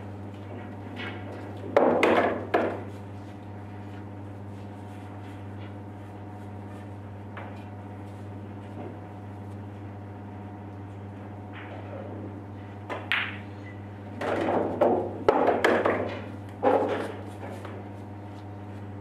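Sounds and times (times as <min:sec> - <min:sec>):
cue tip striking ball: 0:12.9 - 0:13.5, 0:14.2 - 0:17.3.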